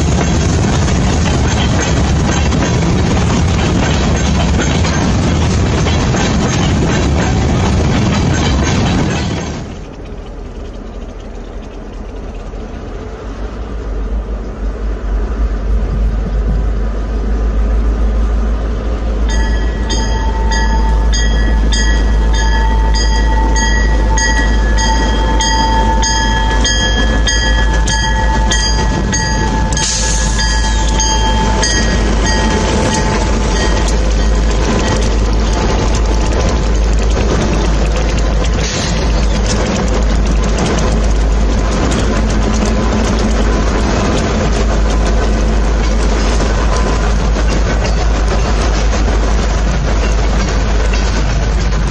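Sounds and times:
diesel locomotive engine rumble: 0.0s - 51.9s
warning bell ringing: 19.3s - 35.7s.

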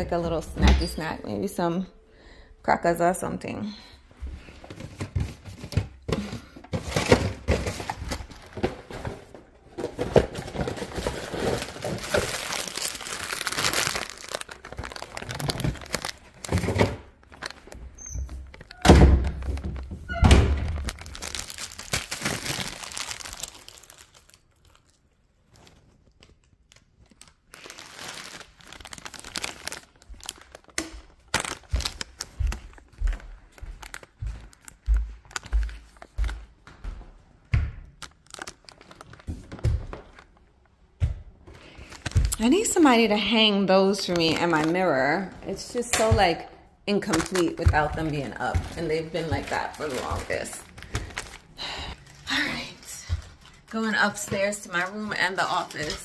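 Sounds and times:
thunks in a pantry: 0.4s - 1.2s, 4.8s - 12.6s, 15.7s - 17.1s, 18.0s - 21.1s, 34.9s - 38.0s
packaging crinkling: 9.8s - 20.0s, 20.6s - 36.5s, 37.9s - 40.7s, 41.6s - 43.0s, 43.8s - 45.8s, 46.9s - 56.0s
footsteps on hardwood floor: 31.7s - 37.9s.

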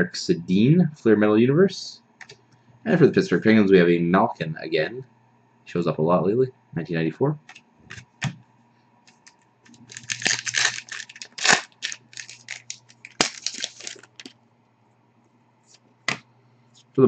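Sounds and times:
foil wrapper tearing and crinkling: 9.1s - 14.4s
wrapper snap: 9.1s - 14.4s.

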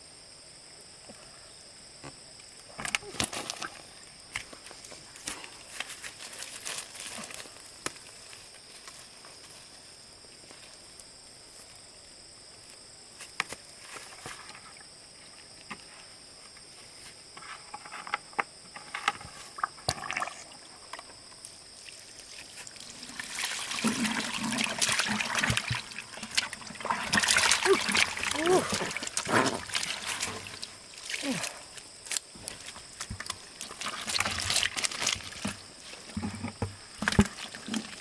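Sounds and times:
water trickling and splashing: 21.7s - 38.0s.

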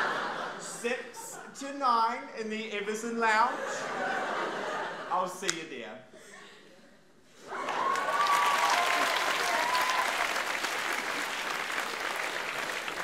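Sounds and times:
audience applauding: 7.5s - 13.0s
person whooping: 7.6s - 10.3s.

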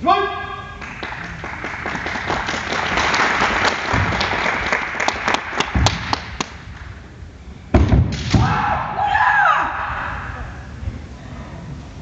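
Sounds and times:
audience applauding: 0.8s - 6.6s
low thuds: 7.7s - 8.6s.

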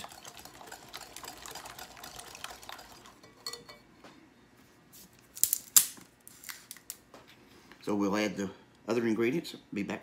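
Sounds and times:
whisk beating eggs in bowl: 0.0s - 3.6s
whisk clinking against bowl: 0.0s - 3.8s.

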